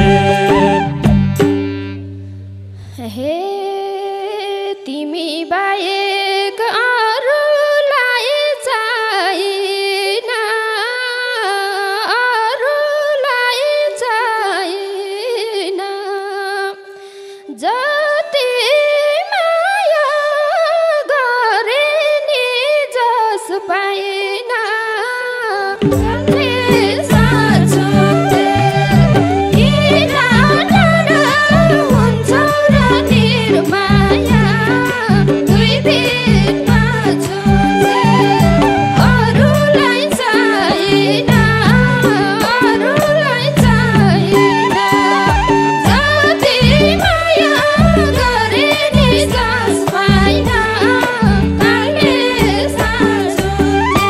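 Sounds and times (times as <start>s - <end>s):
person singing folk melody: 0.0s - 1.1s, 17.6s - 54.0s
held drone note: 0.0s - 2.9s, 26.0s - 42.8s
low band note: 0.0s - 3.0s.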